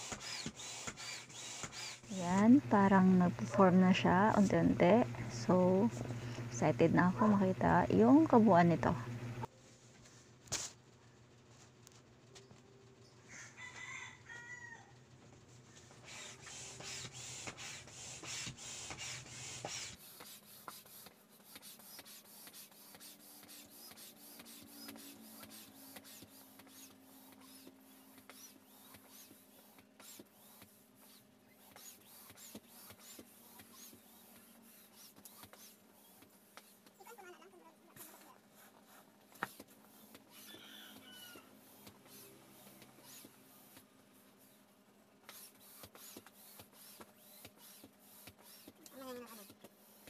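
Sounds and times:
hand air pump strokes: 0:00.0 - 0:03.0, 0:15.9 - 0:37.2, 0:38.0 - 0:44.6, 0:45.2 - 0:50.0
rooster crowing: 0:13.2 - 0:15.0, 0:40.3 - 0:41.6.

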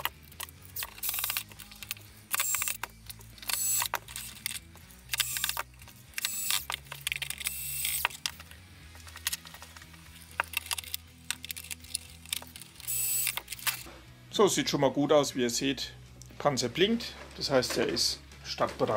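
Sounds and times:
cordless screwdriver whirring: 0:00.0 - 0:08.5, 0:10.3 - 0:13.9
small clicks: 0:00.0 - 0:13.9.

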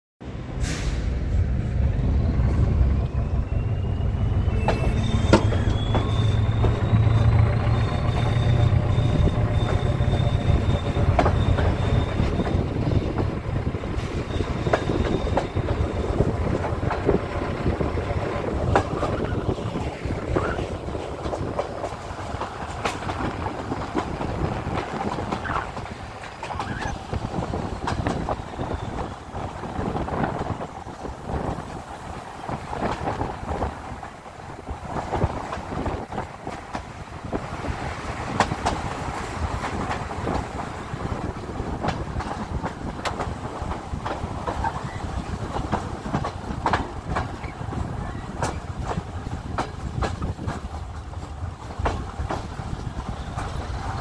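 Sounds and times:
locomotive whine: 0:00.2 - 0:49.9
diesel locomotive rumble: 0:00.2 - 0:54.0
wheels clicking over rail joints: 0:14.0 - 0:54.0.

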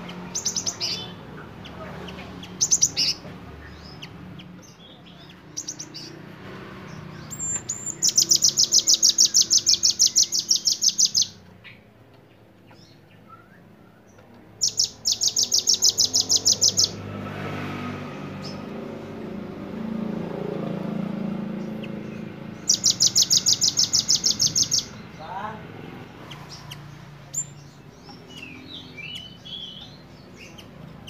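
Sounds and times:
bird singing high trills: 0:00.0 - 0:01.2, 0:06.9 - 0:11.8, 0:12.8 - 0:17.1, 0:21.5 - 0:25.2, 0:26.3 - 0:30.7.

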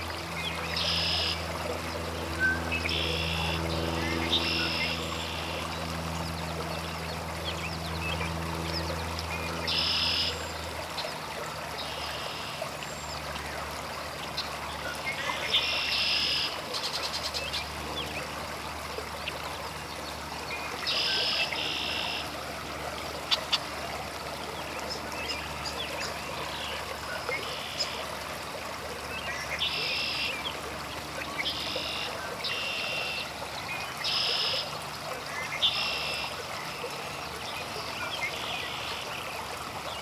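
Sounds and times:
steady low hum: 0:00.0 - 0:15.6.

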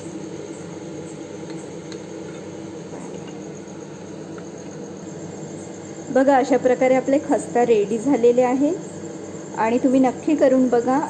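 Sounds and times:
hot oil sizzling: 0:00.0 - 0:06.1.

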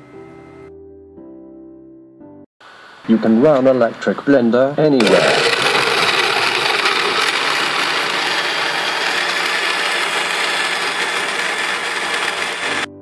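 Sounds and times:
electric blender whirring: 0:05.0 - 0:12.9.

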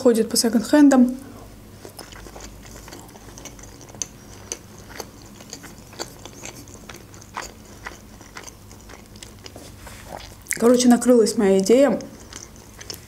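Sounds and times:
person chewing with wet mouth clicks: 0:01.8 - 0:10.8, 0:12.0 - 0:13.0.

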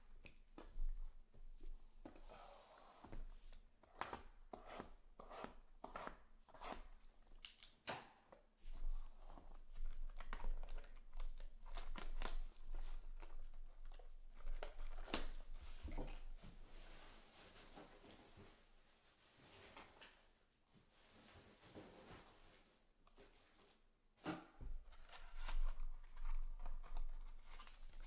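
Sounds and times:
plastic wrap crinkling and tearing: 0:09.7 - 0:16.1, 0:24.8 - 0:28.0.

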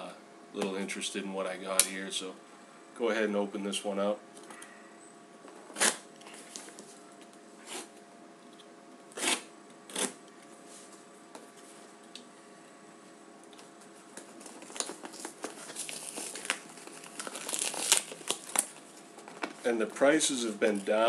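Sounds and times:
packaging crinkling and tearing: 0:14.1 - 0:21.0.

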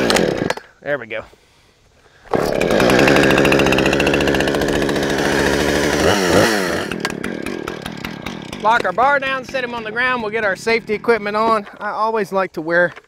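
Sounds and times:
chainsaw running and revving: 0:00.0 - 0:00.6, 0:02.3 - 0:11.7.

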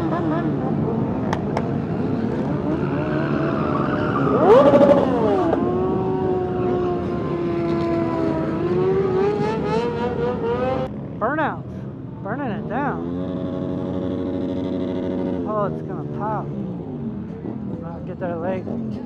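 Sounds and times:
motorcycle revving sharply: 0:00.0 - 0:11.4, 0:12.7 - 0:17.8
motorcycle engines running: 0:00.0 - 0:19.0.

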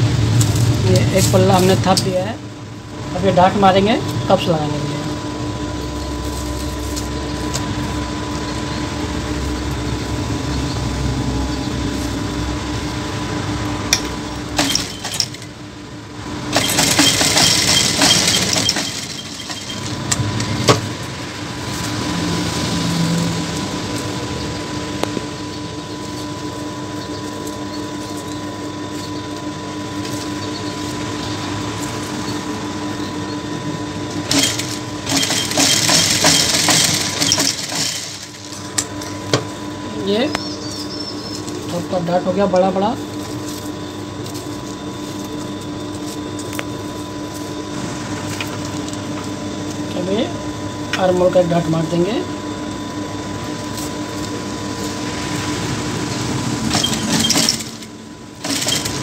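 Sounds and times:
sewing machine stitching: 0:14.6 - 0:15.4, 0:16.5 - 0:20.0, 0:34.3 - 0:38.5, 0:56.7 - 0:57.8, 0:58.4 - 0:59.0.

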